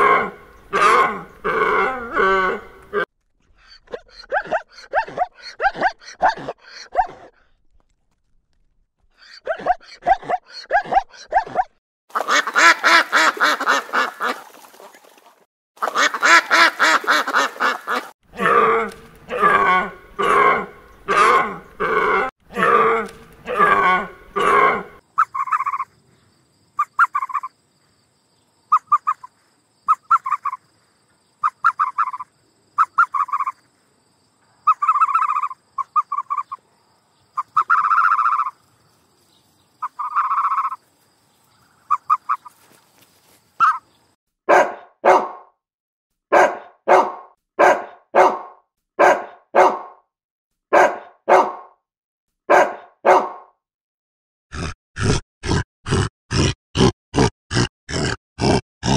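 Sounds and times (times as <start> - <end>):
animal calls: 0.0 - 7.3, 9.2 - 15.2, 15.8 - 26.0, 26.8 - 27.6, 28.7 - 30.7, 31.4 - 33.7, 34.6 - 36.6, 37.4 - 38.6, 39.8 - 40.8, 41.8 - 42.8, 43.6 - 43.9.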